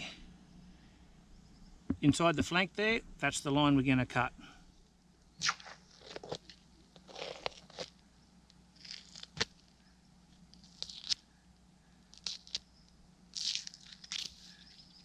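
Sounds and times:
knife slicing and scraping hide: 5.4 - 7.9.

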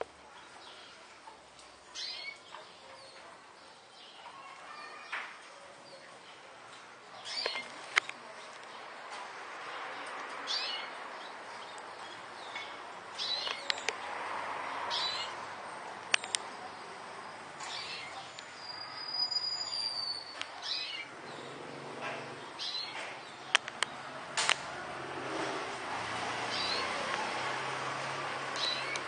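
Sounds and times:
canaries chirping: 1.9 - 5.2, 7.1 - 8.9, 9.8 - 24.2, 26.0 - 29.0
sharp clicks: 16.0 - 16.5, 23.0 - 24.7.

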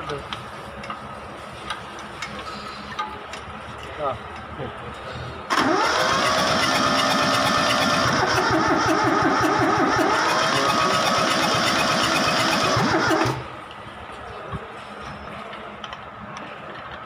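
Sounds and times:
diesel engine cranking on starter: 5.5 - 13.6.

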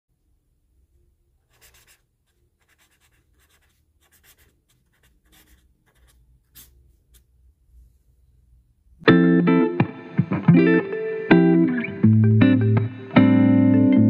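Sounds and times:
pen scratching on paper: 1.5 - 7.2.

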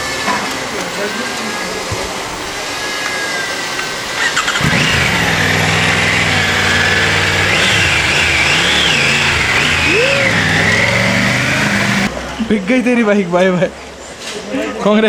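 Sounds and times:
motorcycle engine starting and revving: 4.1 - 12.2.

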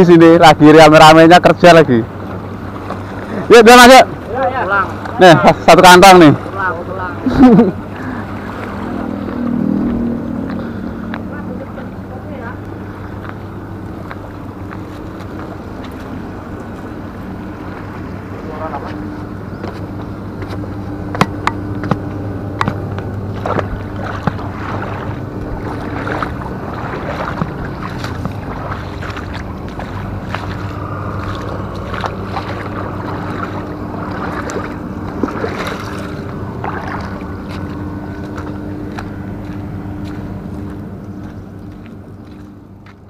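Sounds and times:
engine humming: 0.0 - 43.0
sharp clicks and knocks: 20.4 - 23.1.

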